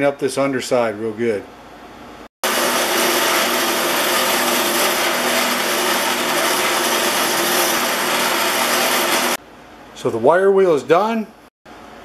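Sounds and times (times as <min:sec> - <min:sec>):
grinder motor hum: 0:02.4 - 0:09.4
wire wheel scratching metal: 0:02.4 - 0:09.4.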